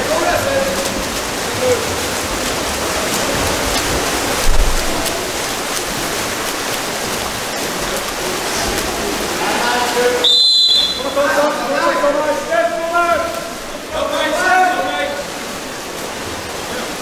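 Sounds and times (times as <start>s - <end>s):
swimmers splashing in pool: 0.0s - 17.0s
low thump: 4.4s - 5.2s.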